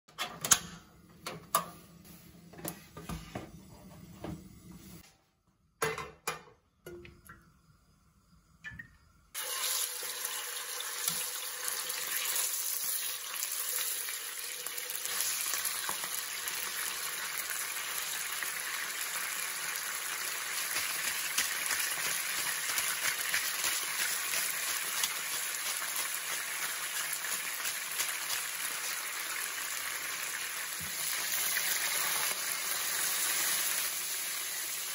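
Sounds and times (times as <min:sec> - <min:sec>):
stove clicks and knocks: 0:05.8 - 0:06.6
chicken sizzling in frying pan: 0:09.4 - 0:34.9.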